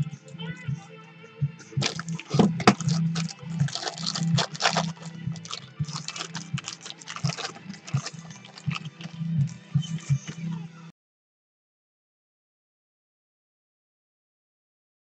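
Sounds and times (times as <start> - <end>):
plastic bag crinkling: 1.8 - 9.2.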